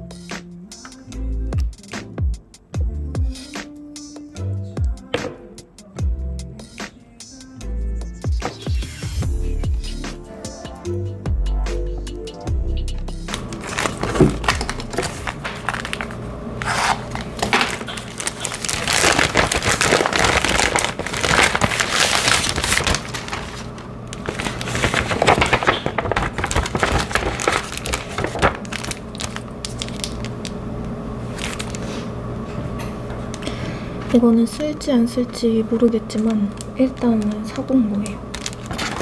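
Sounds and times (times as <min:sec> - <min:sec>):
cardboard and paper sliding: 0:13.3 - 0:30.1
plastic packaging crinkling: 0:13.3 - 0:30.6, 0:31.2 - 0:32.0, 0:35.9 - 0:39.0.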